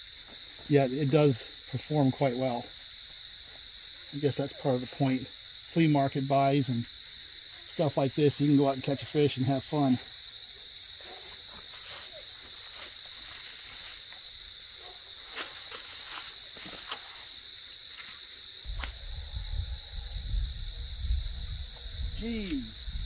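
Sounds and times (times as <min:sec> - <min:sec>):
insects chorus: 0:00.0 - 0:23.0.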